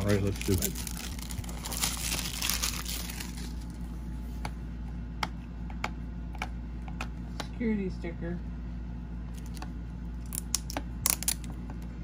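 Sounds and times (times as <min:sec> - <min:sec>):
plastic shrink wrap crinkling: 0:00.0 - 0:03.8.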